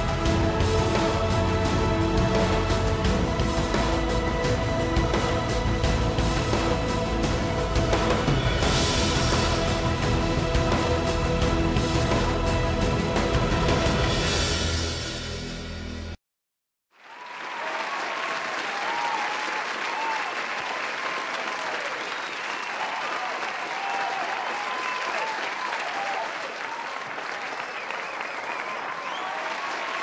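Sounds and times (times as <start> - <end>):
audience applauding: 17.0 - 30.0
voices cheering: 17.0 - 30.0.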